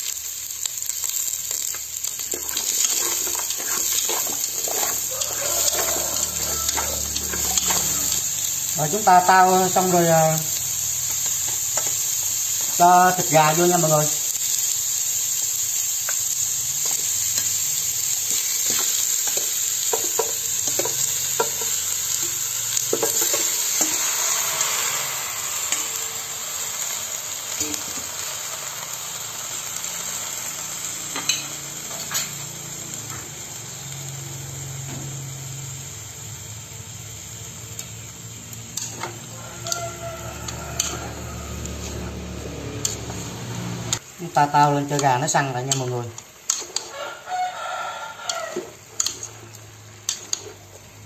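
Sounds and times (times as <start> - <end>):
chicken sizzling in hot oil: 0.0 - 51.0
utensils scraping a pot: 2.2 - 8.2.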